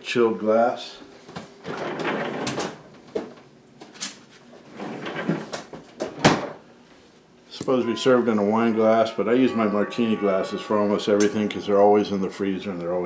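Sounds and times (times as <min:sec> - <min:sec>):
rustling and rattling: 0:01.2 - 0:06.6.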